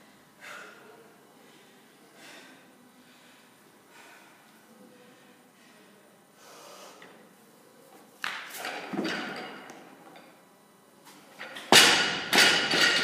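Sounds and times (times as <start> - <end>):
barbell knocks and plates clattering: 8.7 - 9.7, 11.4 - 13.0.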